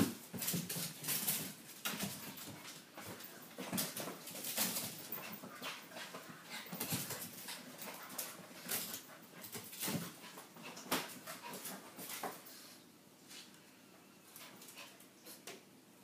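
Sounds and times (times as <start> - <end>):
dogs scuffling: 0.0 - 12.7.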